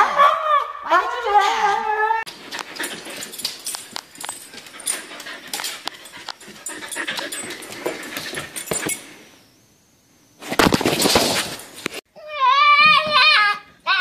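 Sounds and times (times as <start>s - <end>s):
dog panting: 2.3s - 8.8s.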